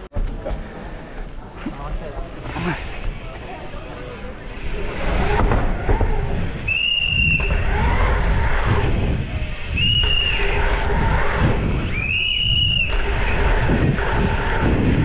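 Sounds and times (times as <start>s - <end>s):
wind and tyres rumbling: 0.0s - 15.0s
short high squeals: 3.7s - 8.8s, 9.7s - 14.3s.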